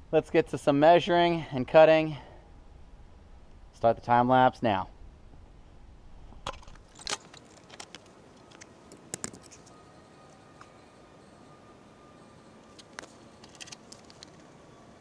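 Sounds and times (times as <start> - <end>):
metallic clinks of steel parts: 6.8 - 9.9.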